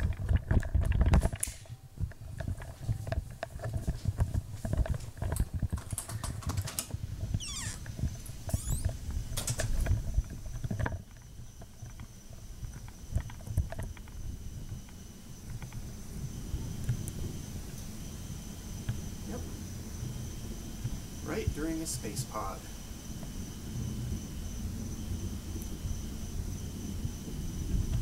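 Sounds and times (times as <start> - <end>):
high insect chirring: 7.3 - 28.0.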